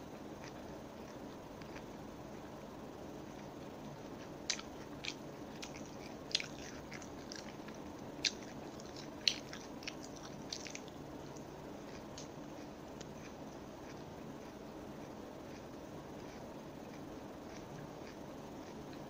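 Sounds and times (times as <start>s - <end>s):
chewing crunches: 0.4s - 19.0s.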